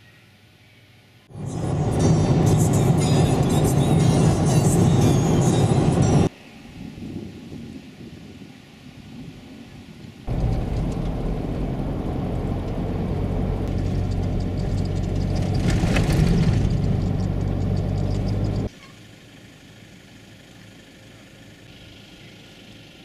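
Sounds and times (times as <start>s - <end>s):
vehicle rumbling on dirt road: 1.3s - 6.3s, 10.3s - 23.0s
rattling over ridges: 10.3s - 18.7s.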